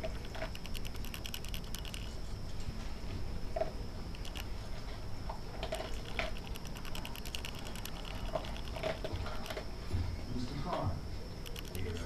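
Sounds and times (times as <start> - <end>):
dog crunching dry kibble: 0.0 - 2.2, 5.5 - 9.7.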